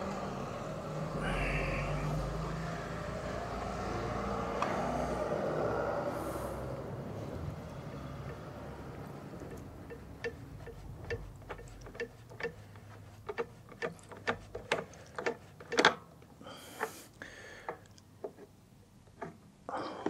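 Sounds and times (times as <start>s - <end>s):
faint traffic noise: 0.0s - 20.0s
oil filter clicking while unscrewed: 7.9s - 16.1s.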